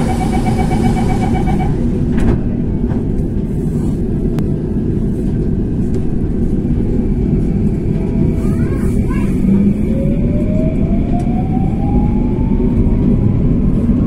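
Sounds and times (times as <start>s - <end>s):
rapidly pulsing electronic beep: 0.0s - 1.8s
train cabin rumble and hum: 0.0s - 14.0s.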